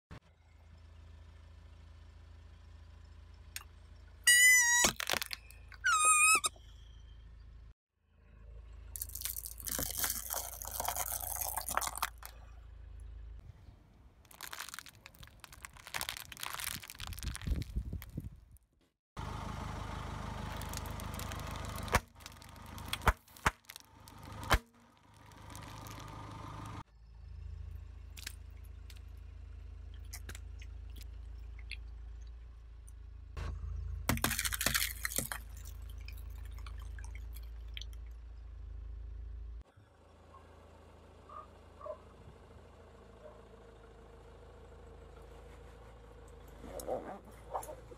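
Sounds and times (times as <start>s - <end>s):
eggs cracking: 4.3s - 6.4s, 9.0s - 12.3s, 14.3s - 18.2s, 34.1s - 37.8s
snack packets bursting: 4.3s - 6.5s, 9.0s - 12.3s, 14.2s - 18.2s, 20.5s - 26.1s, 34.1s - 35.4s
dry pasta crunching: 4.9s - 5.4s, 9.0s - 12.3s, 14.2s - 18.2s, 20.5s - 24.5s, 25.1s - 26.1s, 34.1s - 36.8s.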